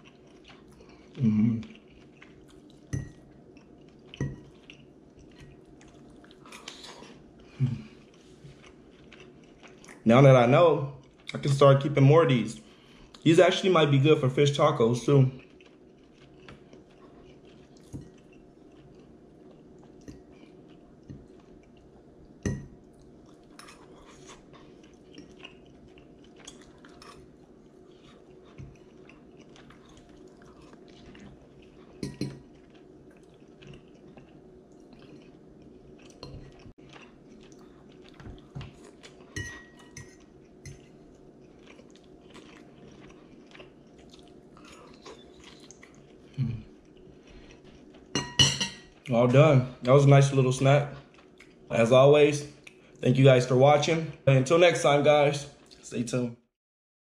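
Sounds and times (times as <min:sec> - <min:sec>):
quiet chewing: 0:00.0 - 0:10.1, 0:15.0 - 0:48.2, 0:50.9 - 0:51.7, 0:52.5 - 0:53.1
faint steady hum: 0:00.0 - 0:56.4.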